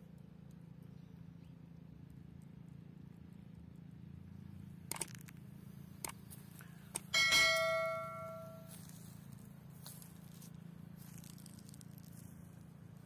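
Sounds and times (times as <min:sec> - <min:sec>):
bell ding: 0:07.2 - 0:08.7.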